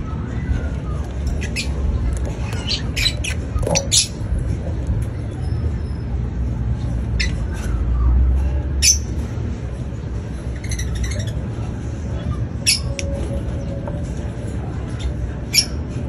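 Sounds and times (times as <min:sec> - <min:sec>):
low rumble: 0:00.0 - 0:07.2
birds chirping: 0:00.0 - 0:16.0.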